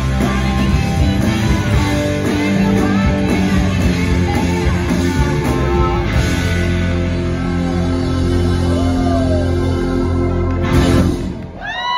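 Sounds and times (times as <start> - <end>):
woman singing: 0.0 - 6.2
blues-rock band playing: 0.0 - 11.6.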